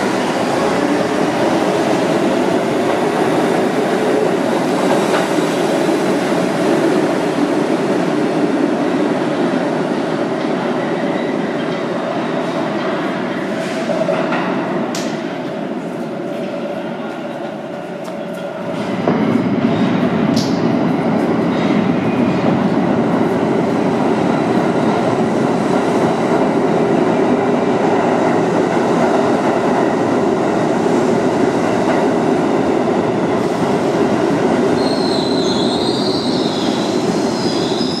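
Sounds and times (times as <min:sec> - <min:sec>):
rumble of train wheels on rail: 0:00.0 - 0:38.0
high wheel squeal: 0:34.8 - 0:38.0.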